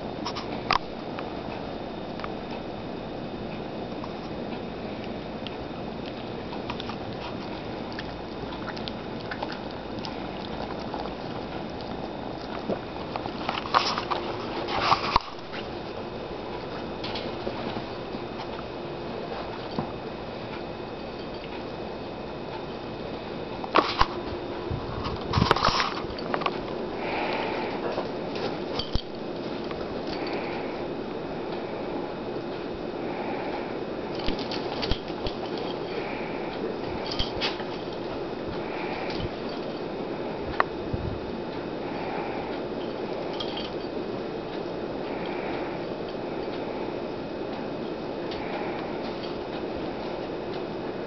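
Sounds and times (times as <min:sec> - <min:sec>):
steady hiss: 0:00.0 - 0:51.0
animals scuffling on bedding: 0:06.0 - 0:21.7, 0:23.6 - 0:30.8, 0:34.1 - 0:41.3
sniffing: 0:23.8 - 0:30.9, 0:33.0 - 0:40.4.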